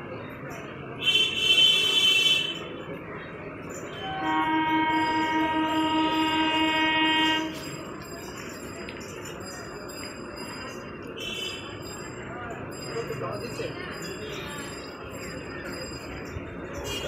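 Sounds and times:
electric train horn blasts: 4.0s - 7.6s.

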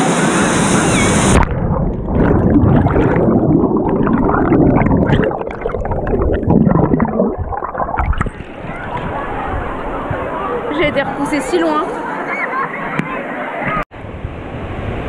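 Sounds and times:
underwater gurgling rush: 0.6s - 10.3s.

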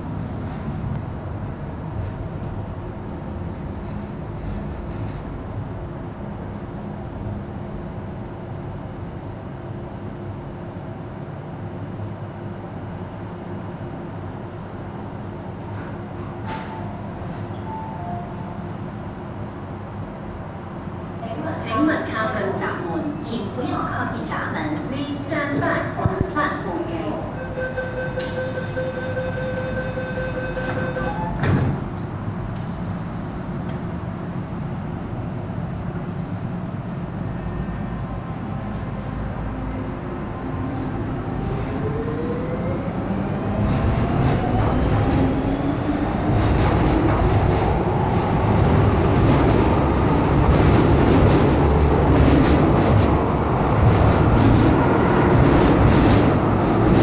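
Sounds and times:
train equipment low hum: 0.0s - 57.0s
train doors shutting thud: 15.7s - 18.5s, 30.5s - 32.0s
door warning beeps: 27.4s - 31.3s.

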